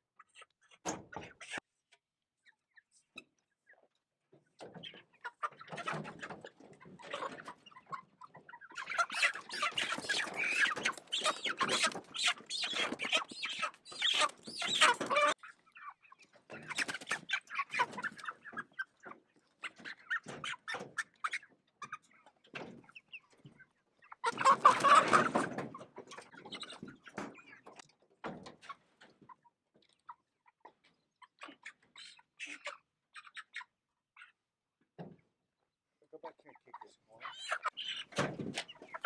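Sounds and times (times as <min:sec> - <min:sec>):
chickens clucking and squawking: 0:00.0 - 0:01.8, 0:02.4 - 0:39.0.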